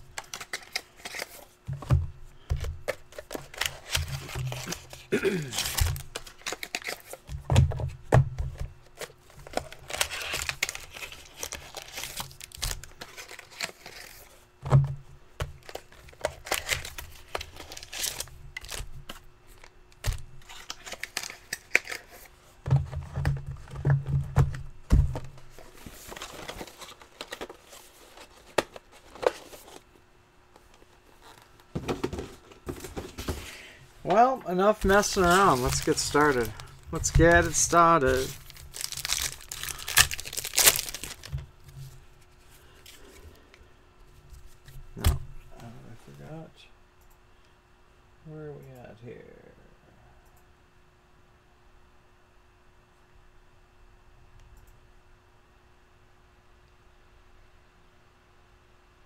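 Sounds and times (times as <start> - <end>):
plastic wrapping crinkling and tearing: 3.2 - 7.3, 9.0 - 14.3, 15.6 - 22.3, 34.7 - 41.4.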